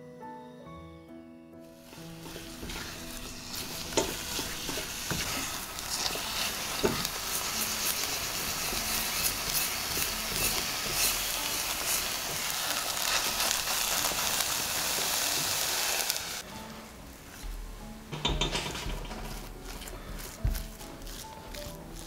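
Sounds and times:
spatula scraping: 1.8 - 15.6, 17.3 - 22.0
dough sizzling in a saucepan: 1.8 - 16.6, 18.1 - 22.0.

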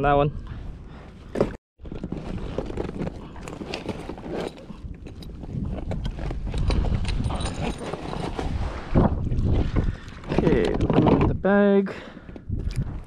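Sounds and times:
wind rumble on microphone: 1.8 - 11.6, 12.2 - 13.0.

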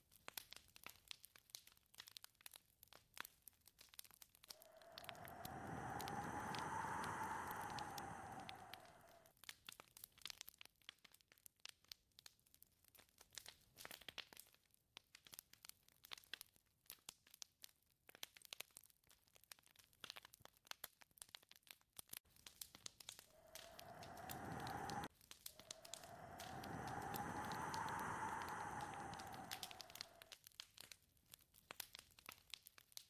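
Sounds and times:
wind gusting with whistle: 4.6 - 9.3, 23.3 - 30.3.

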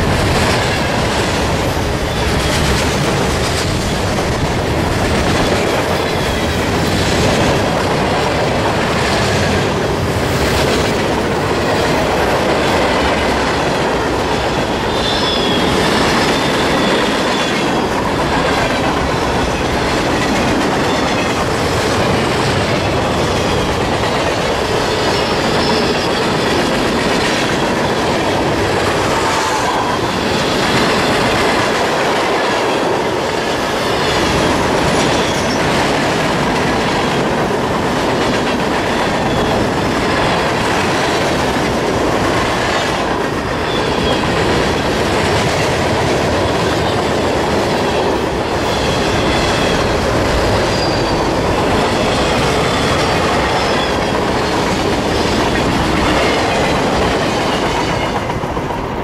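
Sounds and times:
train wheels rumbling on rail: 0.0 - 59.0
high wheel squeals: 14.8 - 17.6, 50.6 - 54.2.

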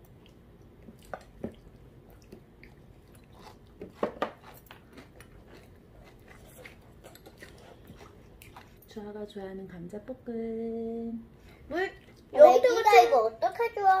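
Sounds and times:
quiet chewing: 0.0 - 9.0, 11.3 - 12.3.

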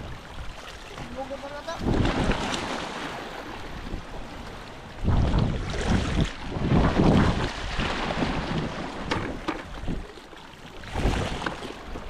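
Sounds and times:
wind gusting on microphone: 0.0 - 2.8, 3.6 - 10.1
sea water washing: 0.0 - 12.0.

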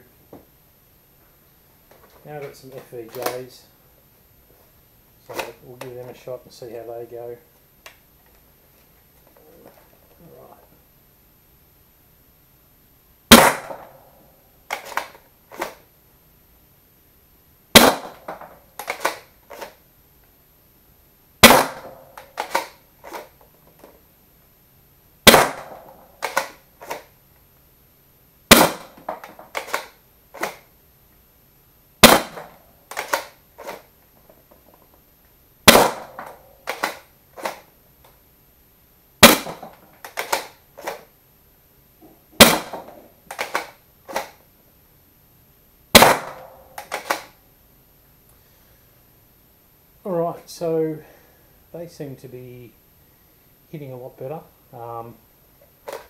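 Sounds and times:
foam dart blaster shots: 13.3 - 14.0, 17.7 - 19.7, 21.4 - 23.3, 25.2 - 27.1, 28.5 - 30.6, 32.0 - 33.8, 35.6 - 37.6, 39.2 - 41.0, 42.4 - 44.4, 45.9 - 47.3.

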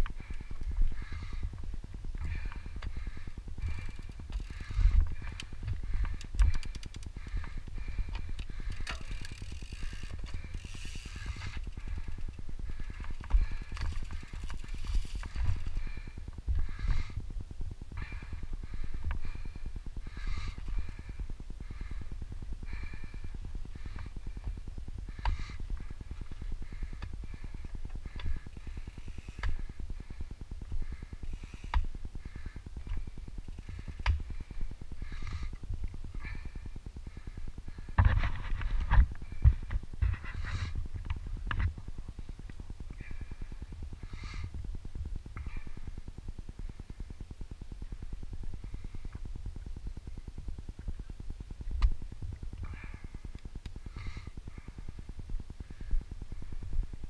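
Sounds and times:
bike chain and frame rattling: 0.0 - 17.2, 22.7 - 35.6
bike tyres rumbling on dirt trail: 0.0 - 57.0.

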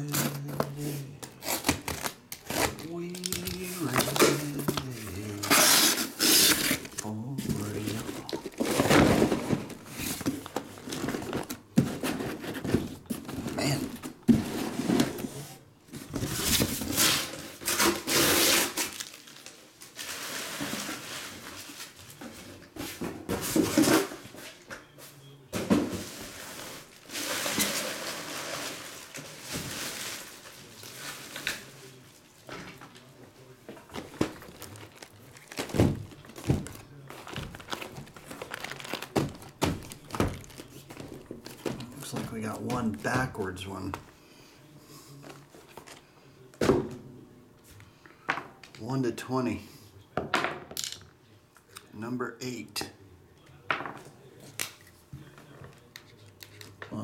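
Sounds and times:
cardboard scraping and rustling: 0.1 - 19.0
boxes thunking down: 3.4 - 15.2, 25.5 - 26.5, 33.7 - 43.4.

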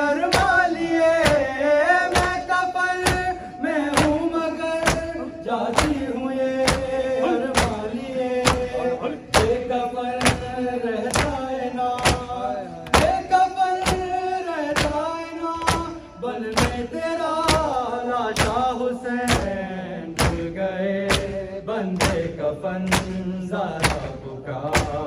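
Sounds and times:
men chanting a lament: 0.0 - 25.0
hand slaps on chest: 12.0 - 13.2, 21.1 - 21.3, 23.8 - 24.2.

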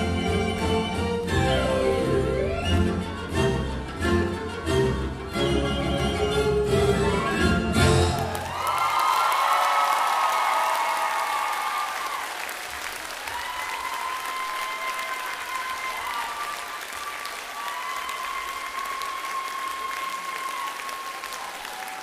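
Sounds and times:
audience applauding: 8.0 - 22.0.

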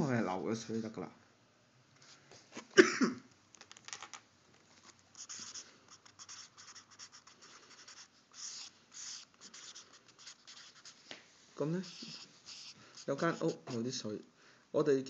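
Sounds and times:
marker pen scratching on paper: 5.1 - 11.1, 11.7 - 14.0.

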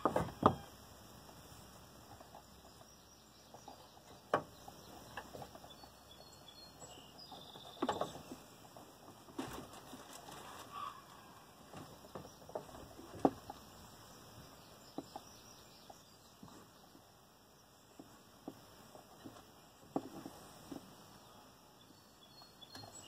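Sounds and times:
faint high chirps: 21.2 - 23.0.

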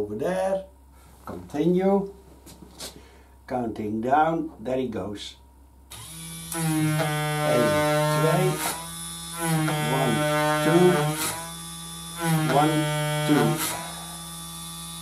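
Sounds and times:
pump motor and valves buzzing: 5.9 - 15.0.

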